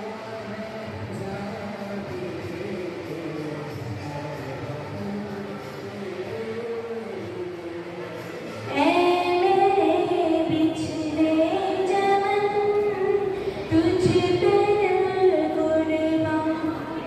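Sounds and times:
singer breathing: 0:13.3 - 0:13.7.

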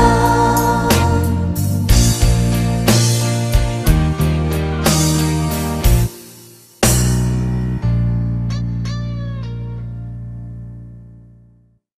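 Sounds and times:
instrumental chord ringing out: 0:00.0 - 0:11.8
guitar notes sliding downward: 0:07.1 - 0:11.2.

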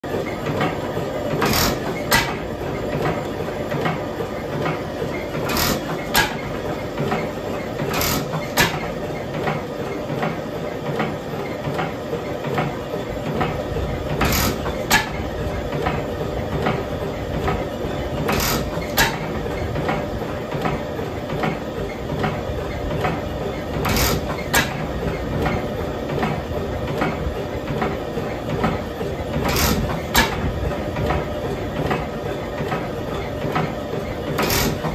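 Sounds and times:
oil engine clattering: 0:00.1 - 0:34.9.

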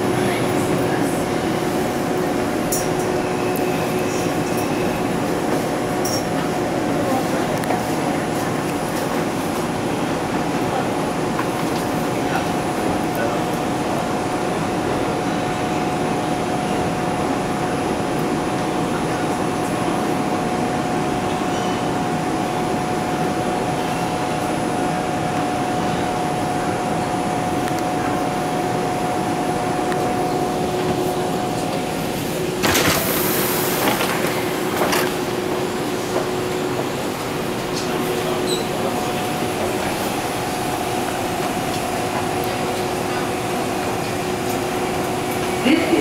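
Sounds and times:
subway car rumble and rail noise: 0:00.0 - 0:46.0.

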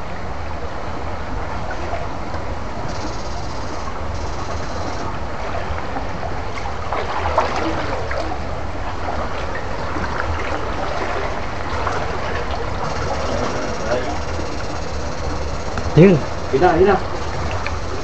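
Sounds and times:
steady low hum: 0:00.0 - 0:18.0
stream water rushing and splashing: 0:05.1 - 0:14.3.

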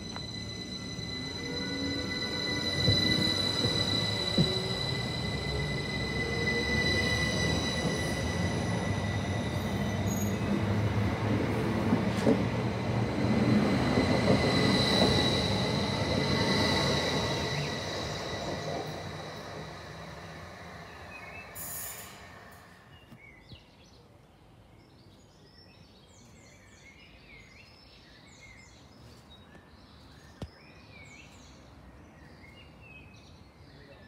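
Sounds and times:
train rumble and whine: 0:00.0 - 0:23.2.

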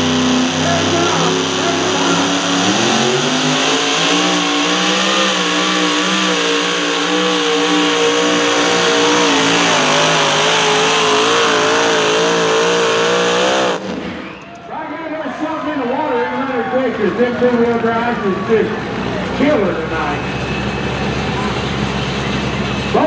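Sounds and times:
supercharged engine running flat out: 0:00.0 - 0:14.3.

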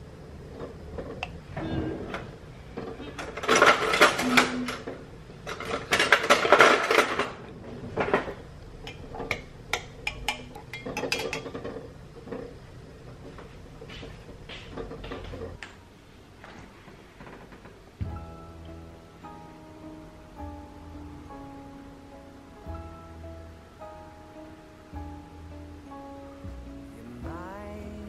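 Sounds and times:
cutlery clattering in drawer: 0:03.2 - 0:04.8, 0:05.5 - 0:07.4
spoon clinking in glass: 0:08.9 - 0:11.5.

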